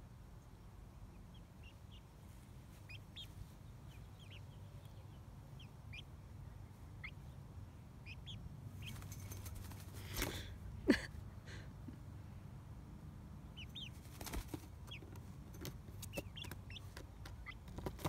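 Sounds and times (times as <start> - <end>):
chick peeping: 0.4 - 7.4, 8.0 - 9.8, 13.4 - 18.0.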